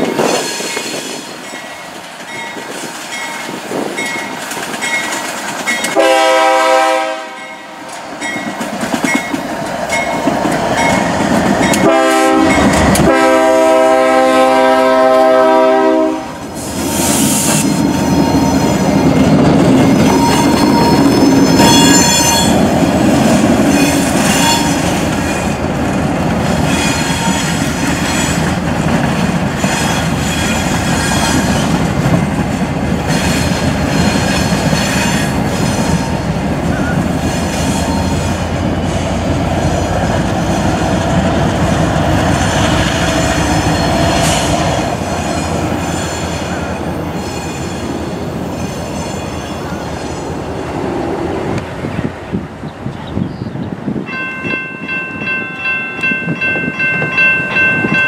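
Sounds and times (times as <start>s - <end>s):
diesel locomotive engines rumbling: 0.0s - 58.0s
high-pitched wheel squeal: 19.8s - 22.6s, 23.7s - 25.4s.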